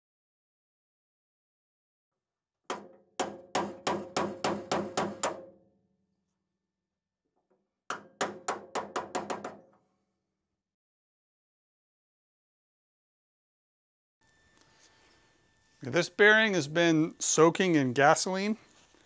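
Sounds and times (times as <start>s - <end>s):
hammer tapping metal bearing: 2.7s - 5.5s.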